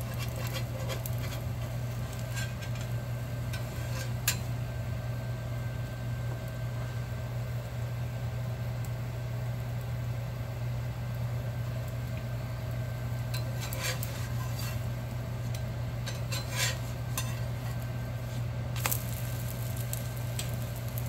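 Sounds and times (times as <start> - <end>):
metal spatula scraping pan: 0.0 - 4.5, 13.4 - 14.9, 15.5 - 17.8
steady low hum: 0.0 - 21.0.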